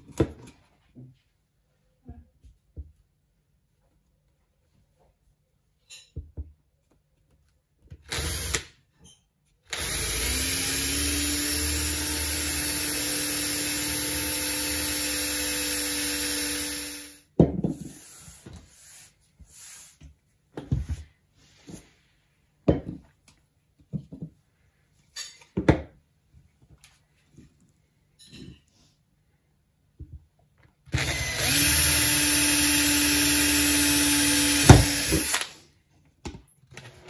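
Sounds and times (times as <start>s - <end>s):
cordless drill boring plastic pipe: 8.0s - 8.7s, 9.7s - 17.2s, 30.9s - 35.6s.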